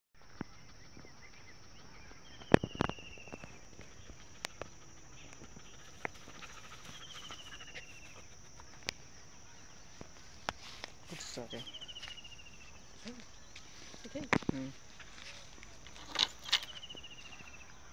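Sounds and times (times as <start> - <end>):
bird chirping trill: 15.8 - 17.9.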